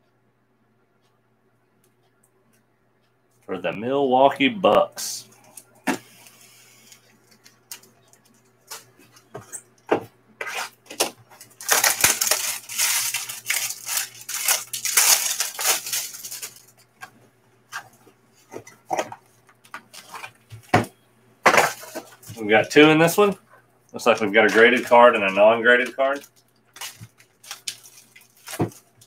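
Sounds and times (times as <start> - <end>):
plastic wrap crinkling and tearing: 10.9 - 16.9, 24.0 - 29.0.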